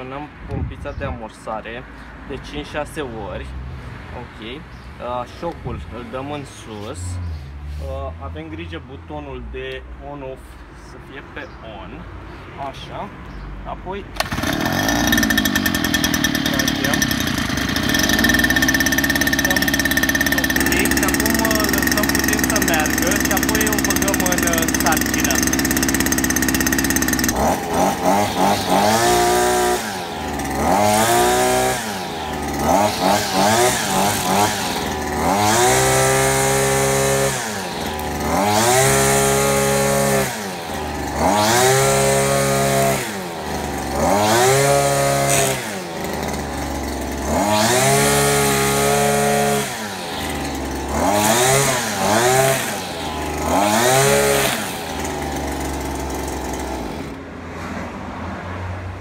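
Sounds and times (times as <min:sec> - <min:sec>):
brushcutter engine revving: 0:14.2 - 0:57.2
trimmer line cutting grass: 0:14.2 - 0:57.2.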